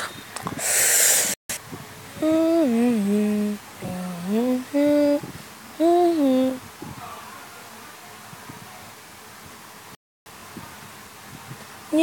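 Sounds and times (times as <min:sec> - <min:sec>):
loud hiss: 0:00.6 - 0:01.4
person humming: 0:02.2 - 0:05.2, 0:05.8 - 0:06.6.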